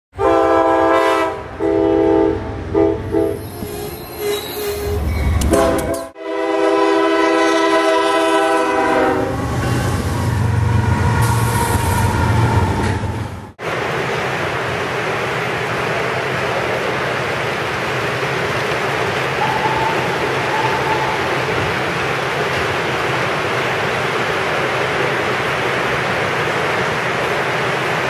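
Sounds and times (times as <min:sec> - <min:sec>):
locomotive horn blasts: 0:00.2 - 0:03.4, 0:05.4 - 0:10.9
low rumble of passing locomotive: 0:04.8 - 0:28.0.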